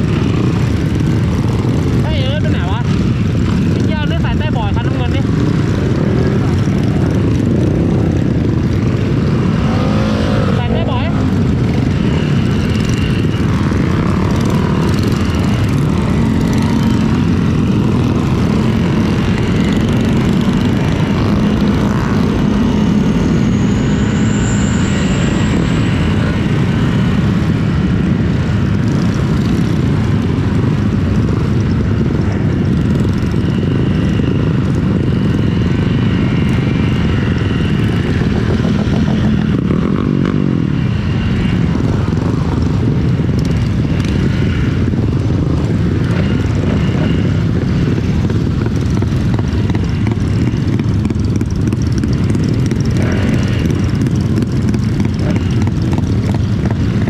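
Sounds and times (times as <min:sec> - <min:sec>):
road noise: 0:00.0 - 0:57.0
scooter engine running: 0:00.0 - 0:57.0.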